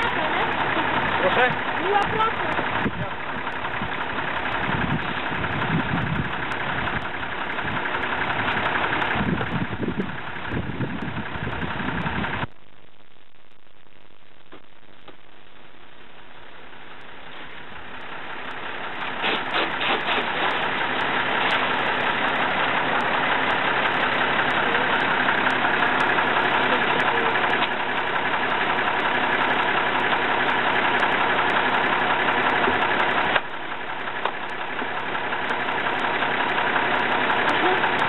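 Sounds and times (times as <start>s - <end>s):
pressure washer spraying metal: 19.0s - 20.8s.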